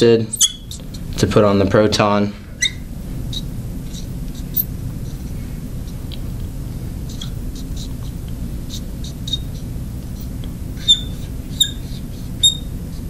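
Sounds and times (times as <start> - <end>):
low background hum: 0.0 - 13.0
marker squeaking on glass: 0.3 - 0.8, 2.6 - 4.7, 7.1 - 7.9, 8.7 - 9.6, 10.2 - 12.7
marker scratching on glass: 7.0 - 13.0.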